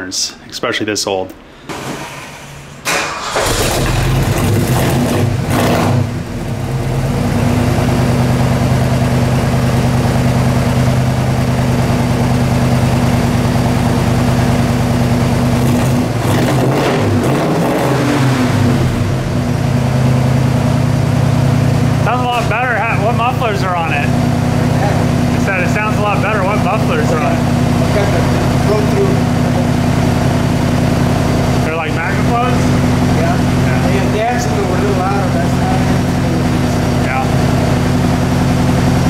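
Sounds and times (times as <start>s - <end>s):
engine throttle blips: 2.8s - 39.0s
car engine idling: 2.9s - 39.0s.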